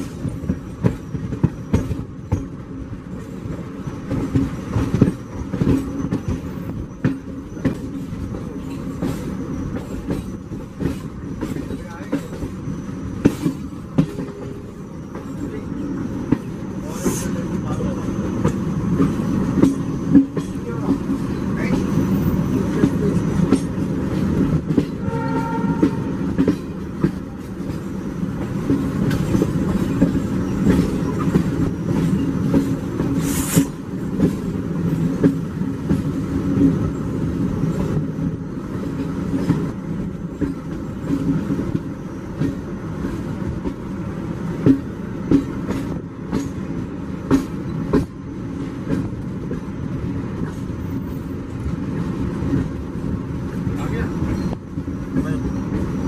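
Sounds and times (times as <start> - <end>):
train rumbling: 0.0 - 56.0
wheels clicking over rail joints: 0.0 - 56.0
train horn: 24.9 - 26.5.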